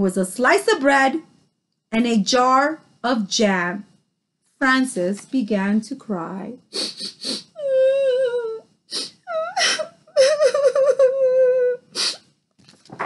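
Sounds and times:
woman imitating child crying: 0:07.0 - 0:12.1.

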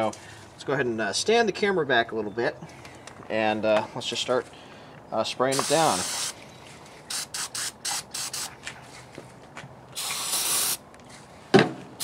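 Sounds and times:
aerosol spray hissing: 0:05.6 - 0:06.4, 0:07.1 - 0:08.5, 0:10.0 - 0:10.8.

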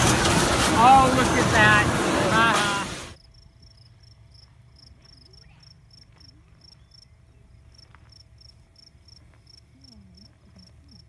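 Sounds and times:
crickets chirping faintly: 0:03.2 - 0:11.0.

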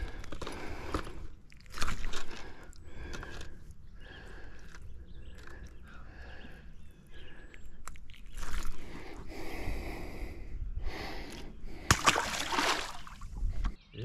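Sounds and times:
fish splashing into water: 0:11.9 - 0:13.2.

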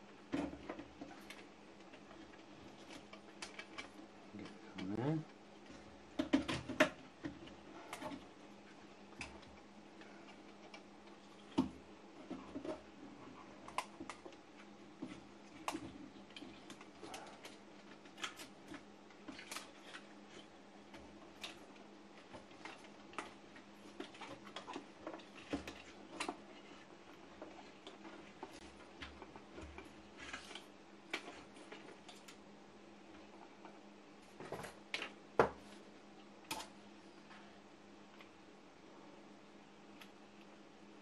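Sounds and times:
faint steady hum: 0:00.0 - 0:41.0.

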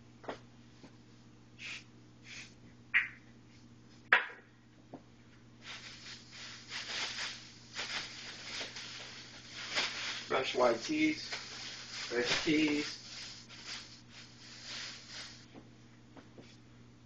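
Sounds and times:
plastic bag rustling: 0:05.6 - 0:15.5.

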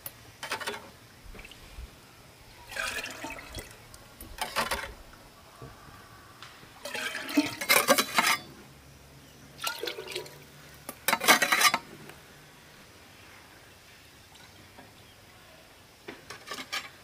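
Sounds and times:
liquid pouring into a container: 0:02.7 - 0:03.9, 0:09.6 - 0:10.4.

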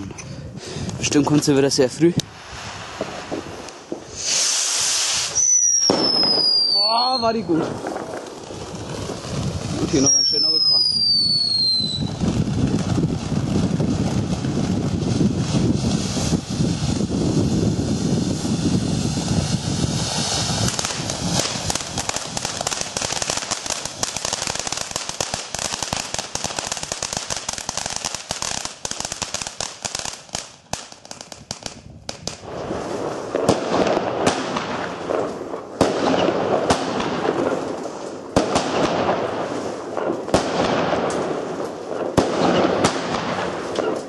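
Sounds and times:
firework crackling: 0:00.0 - 0:44.0
fountain firework hissing: 0:02.3 - 0:29.9.

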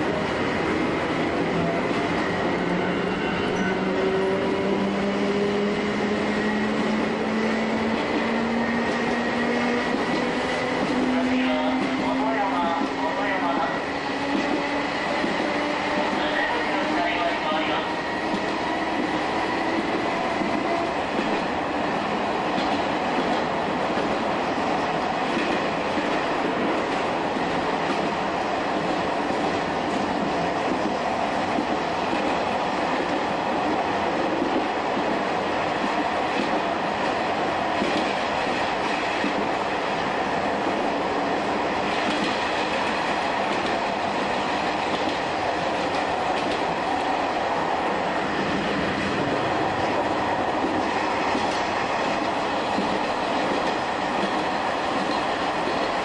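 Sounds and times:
electric train running: 0:00.0 - 0:23.4.

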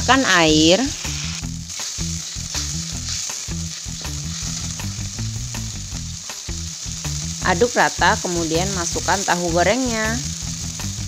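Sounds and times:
water bubbling and sizzling in a wok: 0:00.0 - 0:11.0
spatula scraping a pan: 0:01.7 - 0:05.0.

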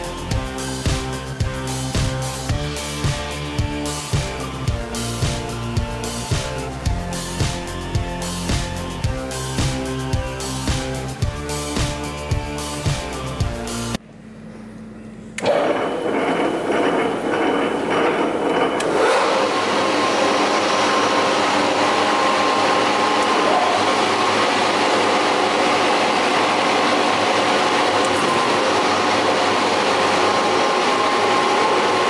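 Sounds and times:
woodworking machine motors humming: 0:15.4 - 0:32.0.

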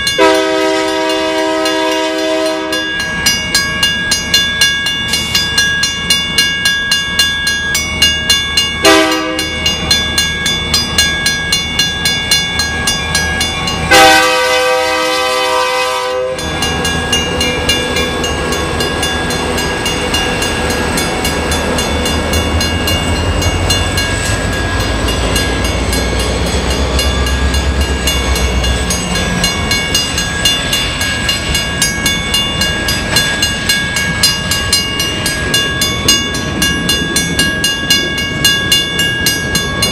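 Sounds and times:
crossing bell ringing: 0:00.0 - 0:39.9
diesel locomotive engine rumble: 0:00.0 - 0:39.9
train wheels on rails: 0:00.0 - 0:39.9
train horn blasts: 0:00.2 - 0:02.9, 0:08.8 - 0:09.6, 0:13.9 - 0:16.5.

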